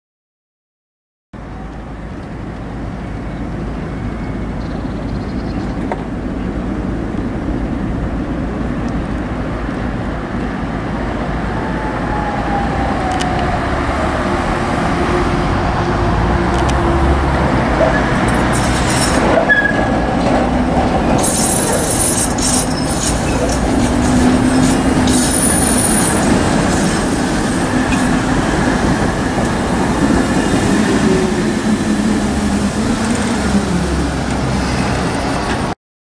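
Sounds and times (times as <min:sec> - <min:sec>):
tram motor hum: 0:01.4 - 0:35.7
tram wheels squealing on rails: 0:17.7 - 0:35.7.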